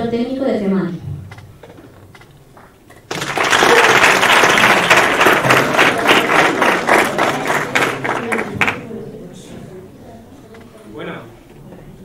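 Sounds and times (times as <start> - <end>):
audience applauding: 3.1 - 8.9.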